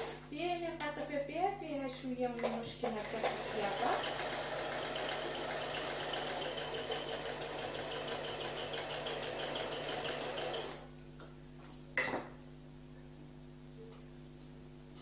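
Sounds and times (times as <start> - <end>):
sewing machine stitching: 2.4 - 10.8.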